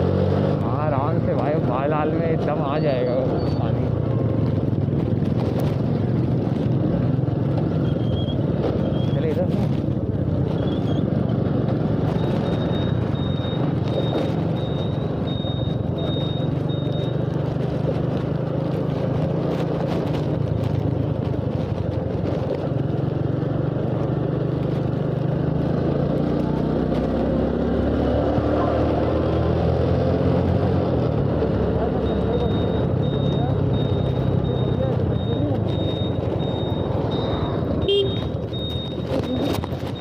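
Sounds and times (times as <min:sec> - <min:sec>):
air rush and road noise: 0:00.0 - 0:40.0
motorcycle engine running: 0:03.2 - 0:29.3, 0:30.6 - 0:40.0
faint high beeping: 0:31.9 - 0:40.0.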